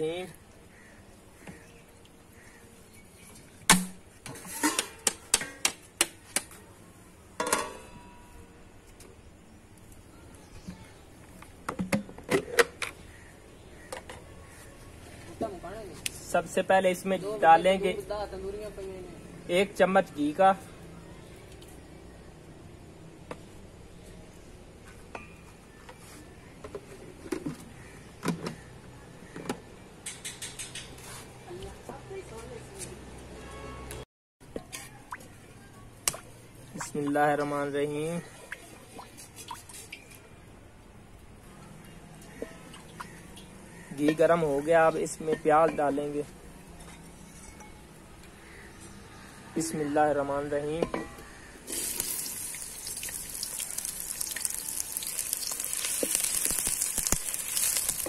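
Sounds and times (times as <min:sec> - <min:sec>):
steel lid scraping clatter: 0:04.3 - 0:05.1
wooden ladle scraping steel pot: 0:04.3 - 0:05.1, 0:46.7 - 0:47.9.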